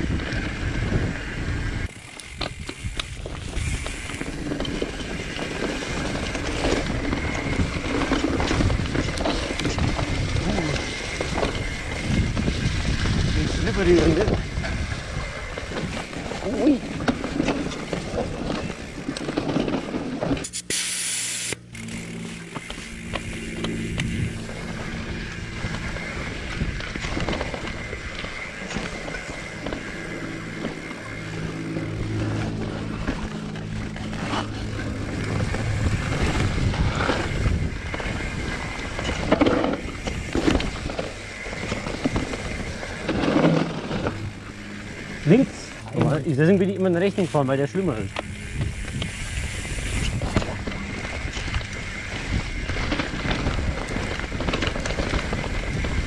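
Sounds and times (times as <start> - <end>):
wind on microphone: 0.0 - 17.2, 22.8 - 30.5, 31.1 - 46.0, 48.1 - 56.0
mountain bike rattling over trail: 0.0 - 56.0
loud hiss: 20.4 - 21.7.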